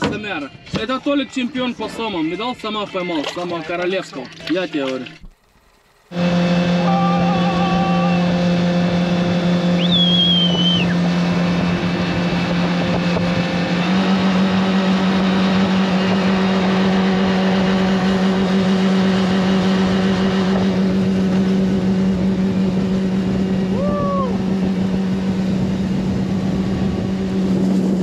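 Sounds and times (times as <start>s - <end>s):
boat motor running: 0.0s - 28.0s
water rushing past hull: 3.2s - 17.3s
high whistling tone: 9.7s - 11.0s.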